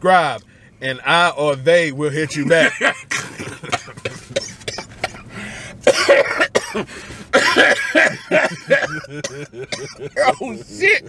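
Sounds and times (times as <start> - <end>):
man coughing hard: 2.4 - 11.0.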